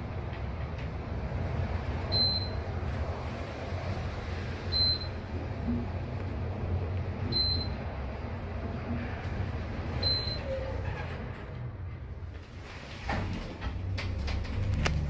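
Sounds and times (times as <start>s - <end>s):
elevator rumble and whirring: 0.0s - 15.0s.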